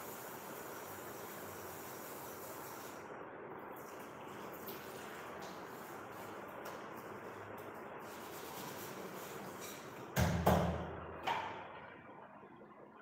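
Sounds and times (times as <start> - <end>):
steady rushing hiss: 0.0 - 3.1.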